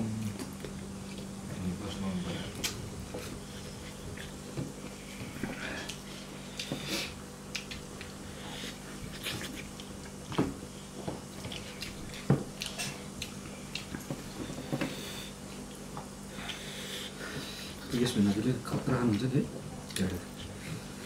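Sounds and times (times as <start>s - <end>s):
steady low hum: 0.0s - 21.0s
wet chewing and lip-smacking: 2.6s - 6.8s, 7.5s - 10.4s, 11.3s - 14.6s.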